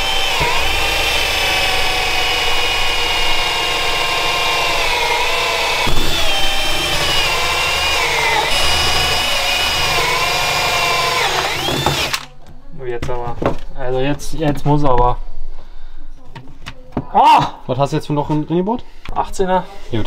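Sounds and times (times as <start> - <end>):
electric drill motor whining: 0.0 - 12.3.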